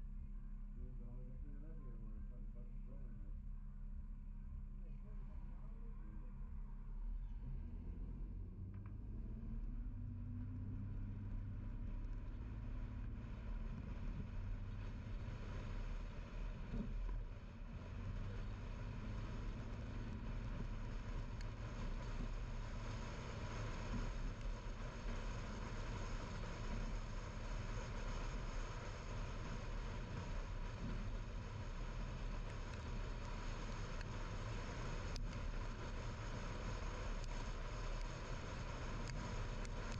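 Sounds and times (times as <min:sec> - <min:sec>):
car engine rumble: 0:00.0 - 0:39.9
tyre and road hiss: 0:12.1 - 0:39.9.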